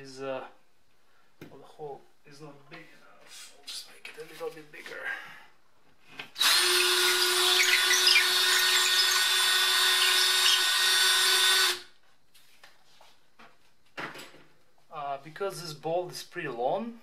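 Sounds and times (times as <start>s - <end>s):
cordless drill drilling drywall: 6.4s - 11.9s.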